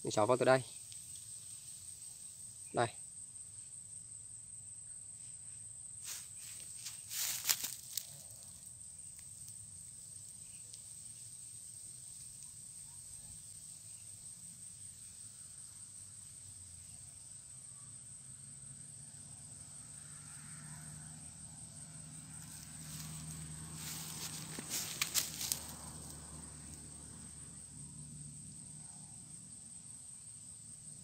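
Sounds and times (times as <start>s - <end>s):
faint small ticks: 0.7s - 1.5s, 6.5s - 11.3s, 22.4s - 26.8s.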